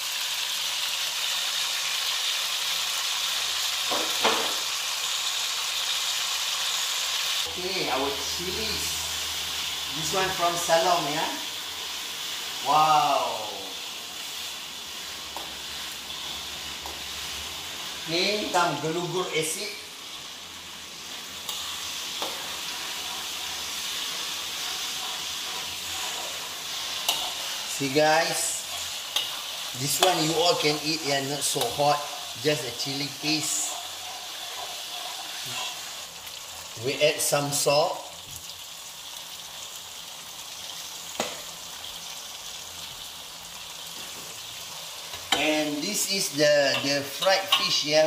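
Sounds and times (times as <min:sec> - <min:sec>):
paste sizzling in hot oil: 0:00.0 - 0:48.0
metal spatula stirring in wok: 0:14.0 - 0:18.5, 0:20.0 - 0:36.8, 0:46.6 - 0:48.0.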